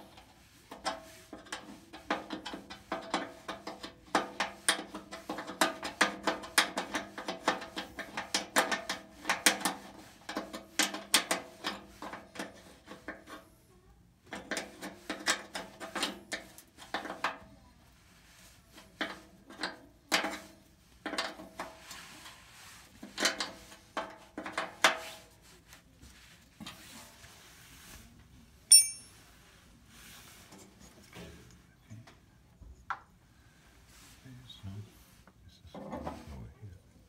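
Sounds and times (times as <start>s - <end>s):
sharp ringing metal clink: 28.7s - 29.2s.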